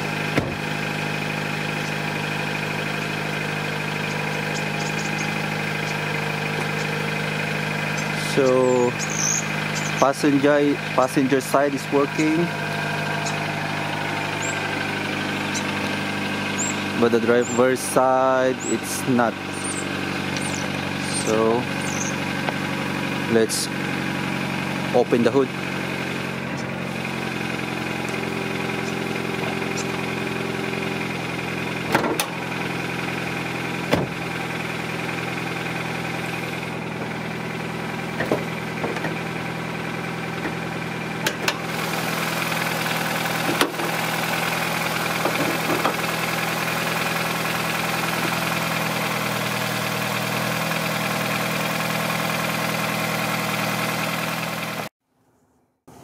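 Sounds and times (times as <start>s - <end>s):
car engine idling: 0.0s - 54.9s
car hood clicks and knocks: 0.3s - 0.6s, 31.9s - 32.4s, 33.9s - 34.2s, 38.2s - 39.2s.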